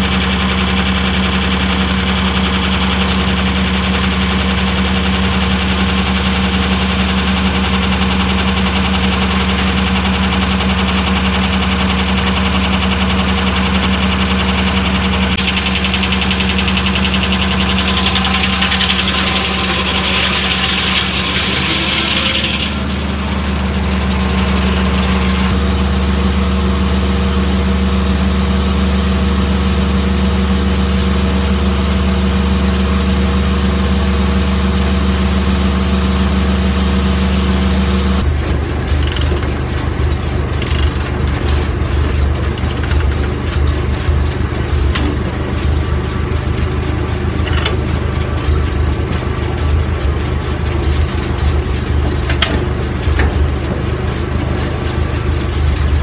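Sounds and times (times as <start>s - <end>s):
sawmill engine drone: 0.0s - 56.0s
high saw hiss: 15.4s - 23.2s.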